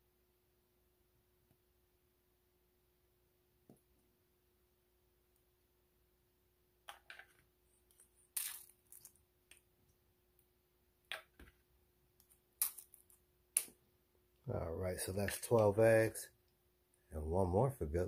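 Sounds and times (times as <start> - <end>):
eggshells crackling and crunching: 7.8 - 9.6, 12.2 - 13.8.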